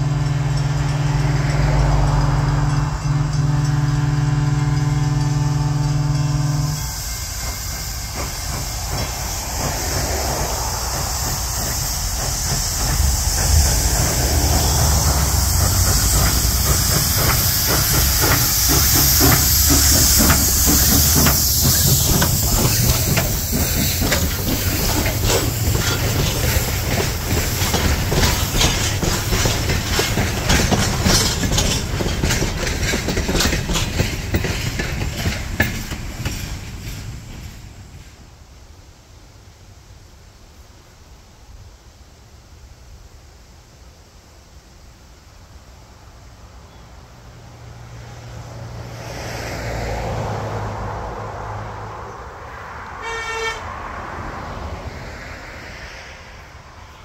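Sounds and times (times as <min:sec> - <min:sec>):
train wheels clicking over rail joints: 0:00.0 - 0:38.5
train low rumble: 0:00.0 - 0:57.0
steam hissing loudly: 0:04.3 - 0:38.4.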